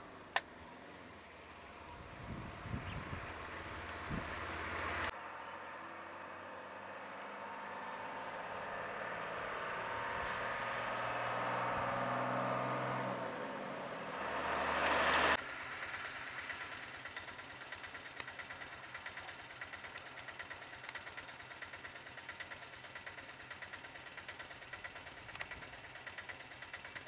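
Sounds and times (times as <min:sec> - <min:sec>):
small engine idling: 0:00.0 - 0:05.2, 0:14.4 - 0:27.0
bus passing by: 0:00.0 - 0:22.2.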